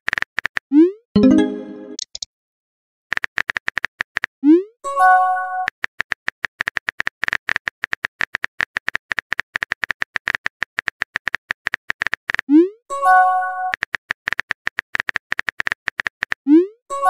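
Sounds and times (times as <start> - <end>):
short message-sent chime: 1.2 - 2.0
synthetic keyboard tap clicks: 1.2 - 2.3, 13.7 - 16.4.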